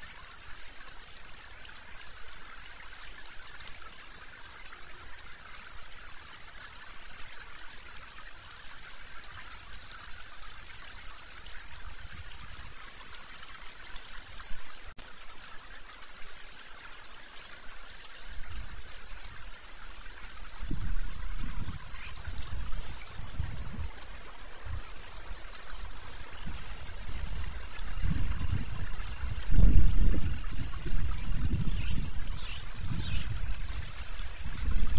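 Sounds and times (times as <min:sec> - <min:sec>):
flowing water: 0:00.0 - 0:34.9
low wind rumble on microphone: 0:20.4 - 0:25.1, 0:26.5 - 0:34.9.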